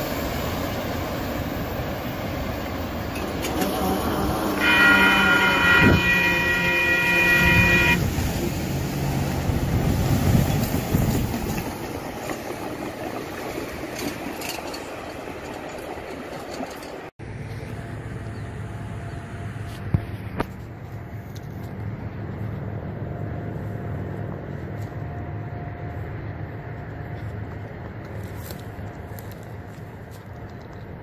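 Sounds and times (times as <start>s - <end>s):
diesel engine drone: 0.0s - 14.0s, 17.2s - 31.0s
train wheels on rails: 8.6s - 17.1s, 24.0s - 31.0s.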